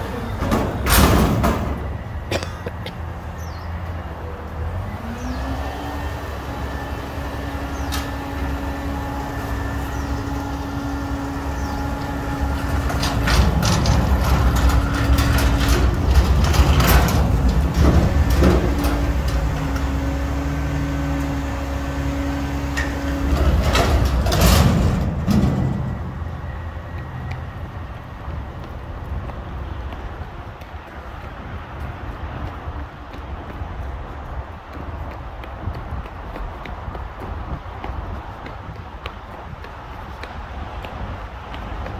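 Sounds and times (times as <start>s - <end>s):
metal dumpster rattling on casters: 0.0s - 2.4s, 7.7s - 26.8s
garbage truck engine revving: 4.6s - 26.5s.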